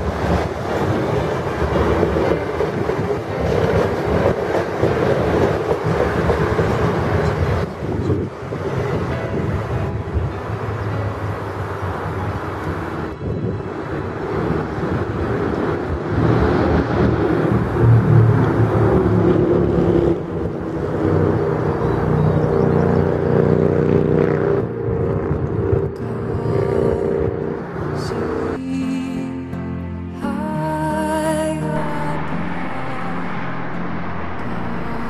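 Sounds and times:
train wheels rumbling on rail: 0.0 - 26.0.

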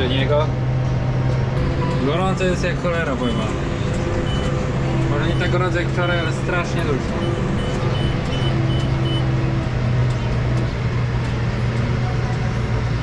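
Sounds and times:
tractor engine running: 0.0 - 13.0
high electronic beeps: 4.2 - 4.6, 5.2 - 5.7, 7.2 - 9.5.

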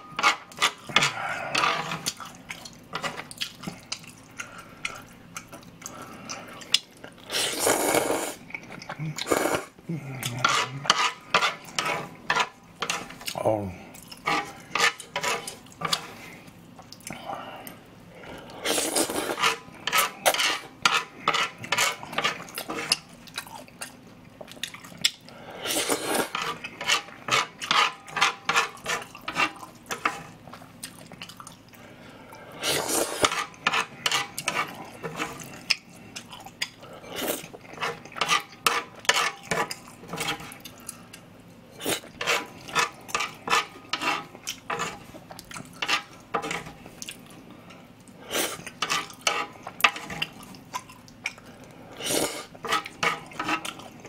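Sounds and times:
wet chewing and mouth clicks: 2.0 - 7.2, 22.5 - 25.3, 30.5 - 31.8, 47.0 - 47.4
noodle slurping: 7.2 - 8.4, 9.2 - 9.8, 18.6 - 19.5, 25.6 - 26.7, 32.6 - 33.4.

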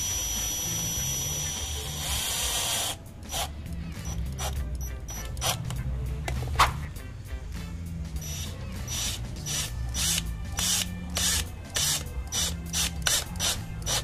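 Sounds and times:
cordless drill driving screw: 8.2 - 14.0.

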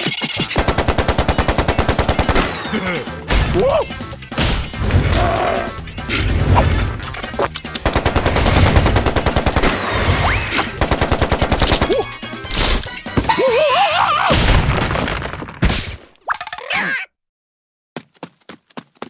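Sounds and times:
cartoon machine-gun shots: 0.0 - 2.7, 7.8 - 12.1
background music: 0.4 - 14.1.

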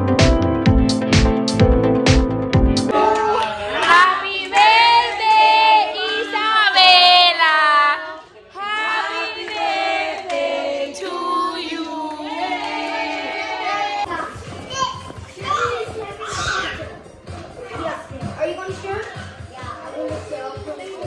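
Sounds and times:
electronic dance music: 0.0 - 2.9
women and children singing: 2.9 - 14.1.

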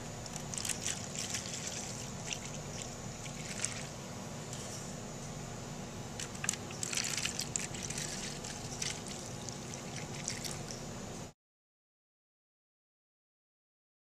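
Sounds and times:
steady low hum: 0.0 - 11.4
liquid wax trickling and splashing: 0.3 - 4.0, 6.2 - 10.7.

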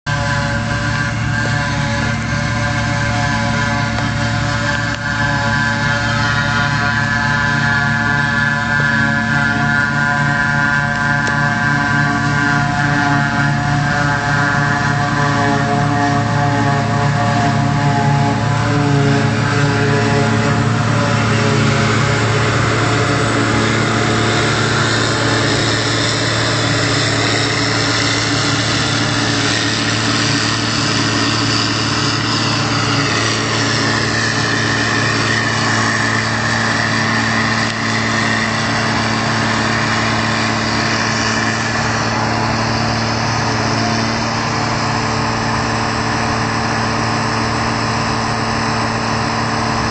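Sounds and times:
diesel engine with high whine: 0.0 - 49.9
tractor pulling trailer: 0.0 - 49.9
forage harvester chopping grass: 0.1 - 49.9.

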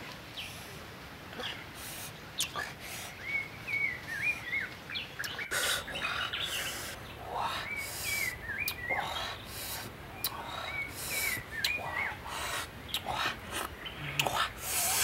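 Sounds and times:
outdoor background: 0.0 - 15.0
bird singing whistled notes: 3.2 - 5.5.

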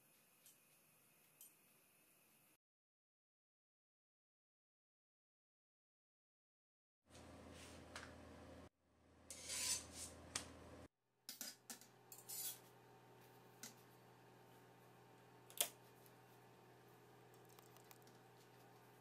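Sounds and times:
rustling scrape: 9.3 - 10.2.

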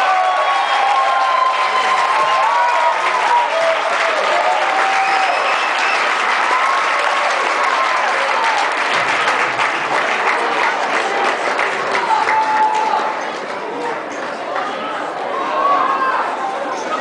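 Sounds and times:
audience applauding: 0.0 - 14.8
people cheering and calling out: 0.0 - 17.0.

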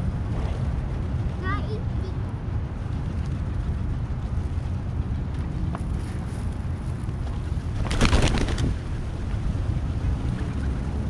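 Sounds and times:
wind rumble on microphone: 0.0 - 11.0
pigeon wingbeats: 5.7 - 9.2.

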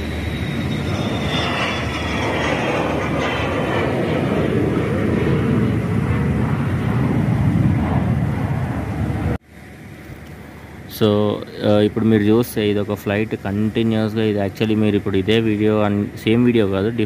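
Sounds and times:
jet engine roar with high whine: 0.0 - 17.0.

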